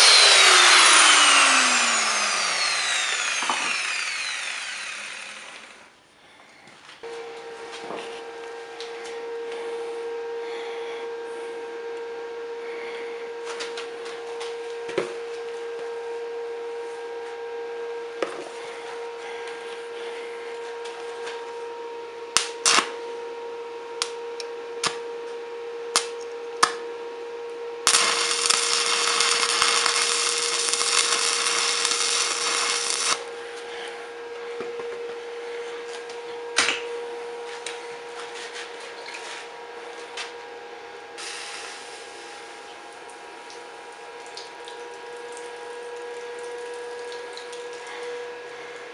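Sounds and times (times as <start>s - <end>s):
arc welding crackling hiss: 0.0s - 5.8s, 27.8s - 33.2s, 41.2s - 42.5s
steady hum: 0.0s - 48.9s.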